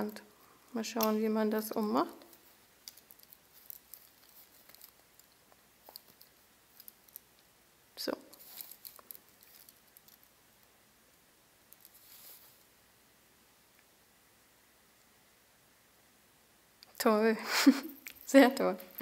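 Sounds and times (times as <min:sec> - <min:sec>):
bangle clicking and rustling: 0:01.0 - 0:07.5, 0:08.3 - 0:10.7, 0:11.7 - 0:12.6, 0:17.9 - 0:19.0.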